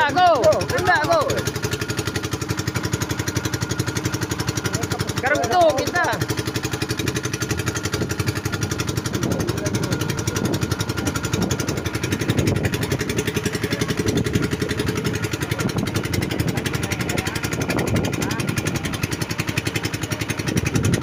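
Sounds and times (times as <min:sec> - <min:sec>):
motorboat engine puttering: 0:00.0 - 0:21.0.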